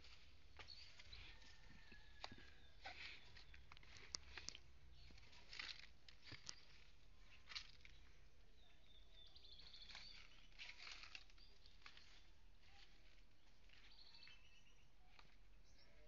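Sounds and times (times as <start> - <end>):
faint birds chirping: 0.0 - 16.0.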